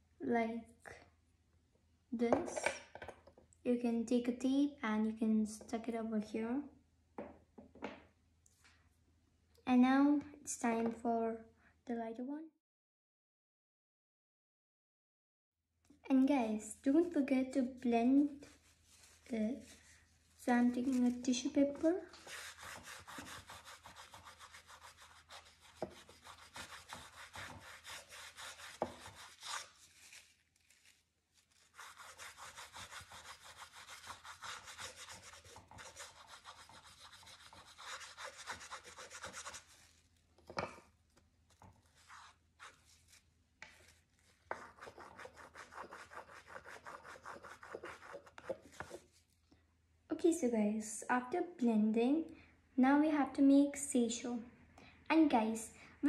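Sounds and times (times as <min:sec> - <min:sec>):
tissue paper rubbing: 0:18.3 - 0:21.2, 0:22.1 - 0:40.2, 0:41.8 - 0:49.3.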